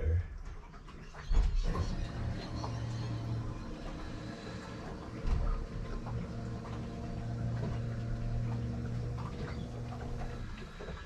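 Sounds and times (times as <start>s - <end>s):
low hum: 1.2s - 11.0s
dull thump: 5.2s - 5.6s.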